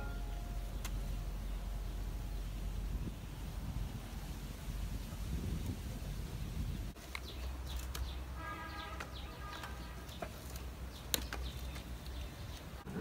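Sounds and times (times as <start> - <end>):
coconut husks knocking and rustling: 6.9 - 8.3, 8.9 - 12.8.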